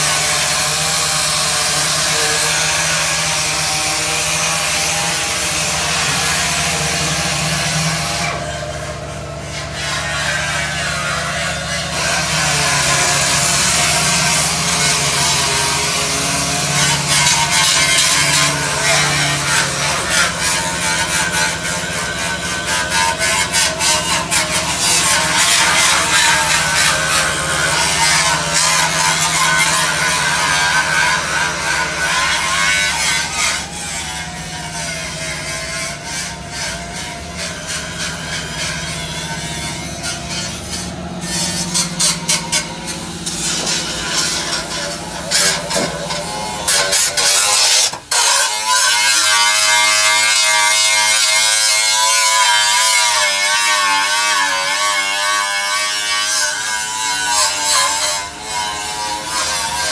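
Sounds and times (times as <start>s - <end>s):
power tool motor buzzing: 0.0s - 59.9s.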